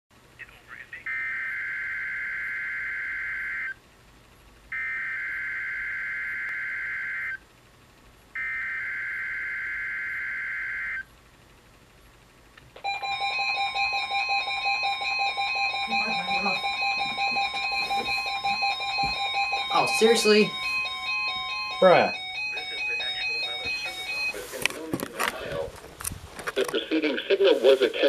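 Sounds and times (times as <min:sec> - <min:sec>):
loud steady alert tone: 0:01.1 - 0:03.8, 0:04.7 - 0:07.4, 0:08.4 - 0:11.1, 0:12.8 - 0:24.6
rapid on-off beeping: 0:04.7 - 0:07.4, 0:08.4 - 0:11.1, 0:12.8 - 0:25.6
screeching digital data bursts: 0:12.8 - 0:24.4.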